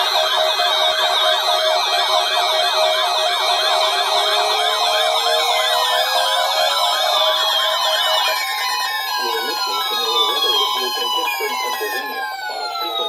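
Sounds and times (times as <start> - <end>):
warbling siren alert: 0.0 - 13.0
tone rising in pitch: 4.2 - 13.0.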